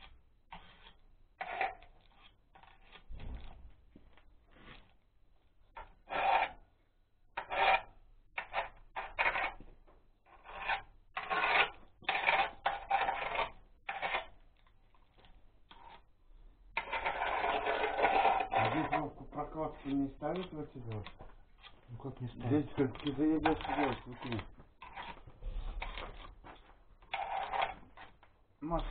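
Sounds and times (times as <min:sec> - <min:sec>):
hand tool scraping metal casing: 0:00.0 - 0:03.6, 0:10.3 - 0:14.7, 0:16.7 - 0:28.9.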